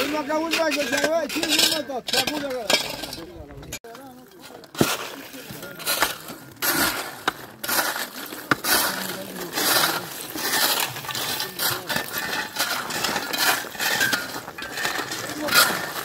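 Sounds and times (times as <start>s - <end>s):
ice chunks clinking and crunching: 0.0s - 16.0s
shovel scraping through ice: 4.7s - 16.0s
pickaxe striking ice: 4.8s - 16.0s.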